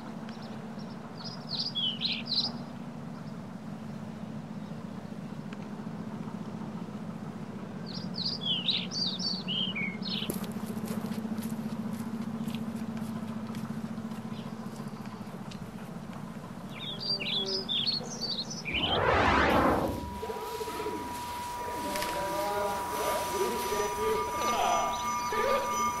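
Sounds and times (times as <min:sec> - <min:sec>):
loud rushing noise: 0:18.7 - 0:20.4.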